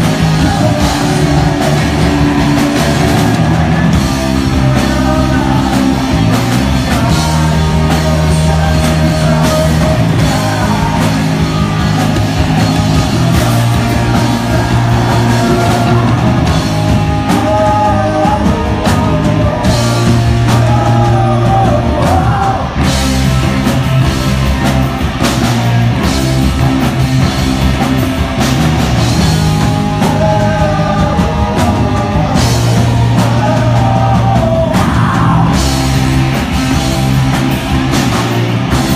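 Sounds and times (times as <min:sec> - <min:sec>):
man singing: 0:00.0 - 0:24.1, 0:29.0 - 0:36.8
bass guitar: 0:00.0 - 0:38.9
drum kit: 0:00.0 - 0:38.9
electric guitar: 0:00.0 - 0:38.9.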